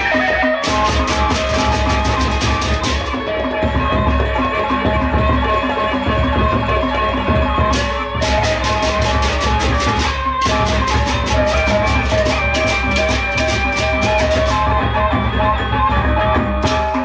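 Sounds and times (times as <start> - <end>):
bright high percussion strokes: 0.0 - 17.0
large barrel drums beaten: 0.0 - 17.0.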